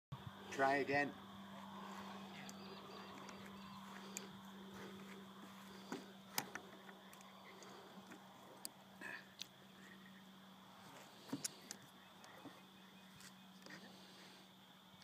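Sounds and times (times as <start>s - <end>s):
faint low hum: 0.1s - 15.0s
hands clicking engine parts: 5.9s - 8.8s.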